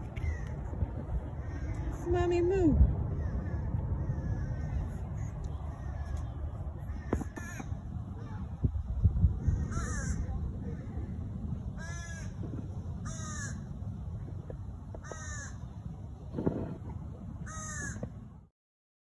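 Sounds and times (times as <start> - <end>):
steady low rumble: 0.0 - 18.5
crow cawing: 1.4 - 1.9, 3.2 - 6.2, 6.9 - 7.7, 9.4 - 10.8, 11.8 - 12.4, 13.0 - 13.6, 15.0 - 15.6, 17.4 - 18.0.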